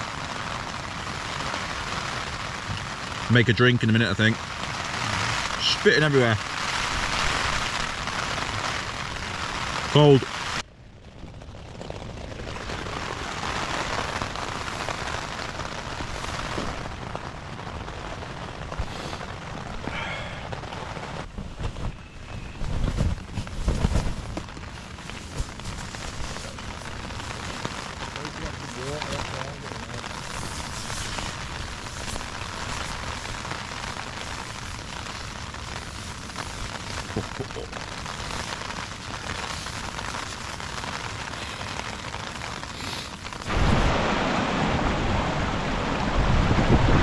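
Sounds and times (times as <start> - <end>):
rain pattering on tent fabric: 0.0 - 47.0
low wind noise: 6.6 - 37.1, 43.3 - 47.0.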